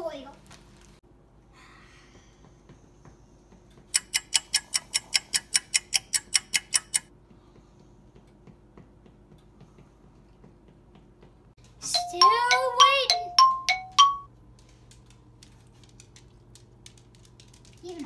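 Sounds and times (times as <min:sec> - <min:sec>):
clock ticking: 0:03.9 - 0:07.1, 0:11.9 - 0:14.3.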